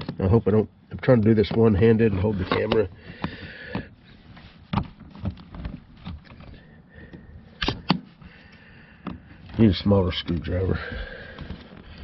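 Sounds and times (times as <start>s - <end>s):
plastic tool scraping: 1.0s - 6.6s.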